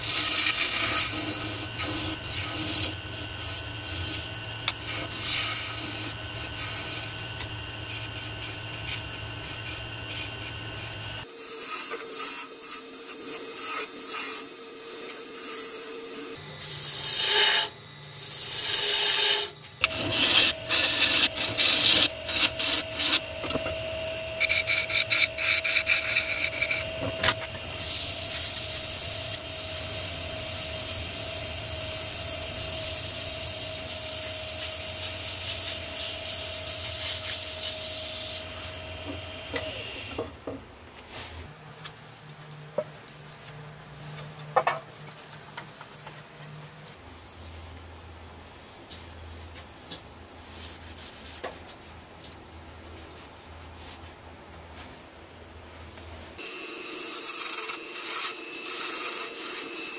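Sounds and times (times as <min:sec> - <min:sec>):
wood lathe running: 0:00.0 - 0:11.2, 0:16.6 - 0:34.9, 0:56.4 - 0:59.9
tool scraping spinning wood: 0:00.0 - 0:14.5, 0:16.4 - 0:40.2.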